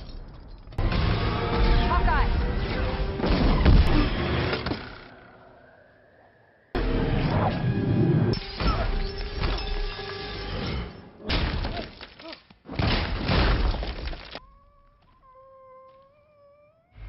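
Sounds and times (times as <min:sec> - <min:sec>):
debris crashing and shattering: 0:11.3 - 0:14.4.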